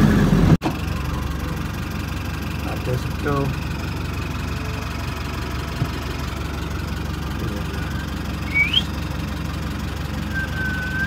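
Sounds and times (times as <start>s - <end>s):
vehicle engine idling: 0.0s - 11.0s
high rising chirp: 7.6s - 9.0s.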